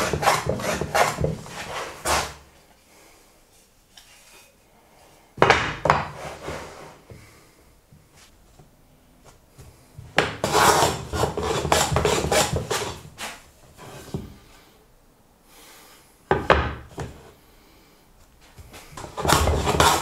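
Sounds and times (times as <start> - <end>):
hand plane cutting wood: 0.0 - 2.4, 10.2 - 14.0, 19.0 - 20.0.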